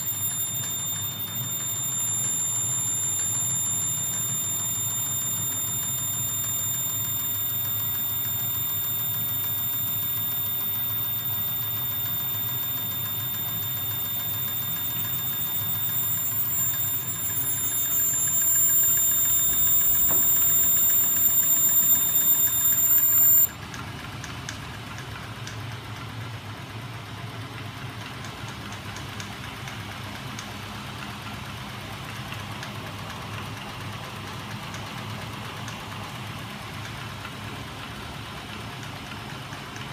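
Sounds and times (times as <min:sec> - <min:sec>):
electric motor low hum: 0:00.0 - 0:23.5
fast light ticking: 0:00.0 - 0:23.5
high-pitched machine whine: 0:00.0 - 0:23.6.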